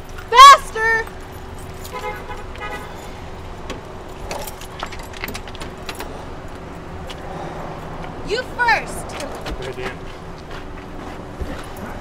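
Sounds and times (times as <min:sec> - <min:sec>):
keys jangling: 0:01.0 - 0:06.7.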